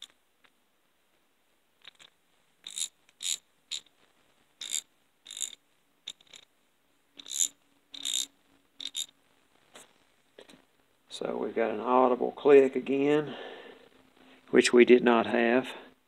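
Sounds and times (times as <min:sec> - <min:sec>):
ratchet pawl clicking: 0:02.6 - 0:03.9, 0:04.6 - 0:06.4, 0:07.2 - 0:09.1.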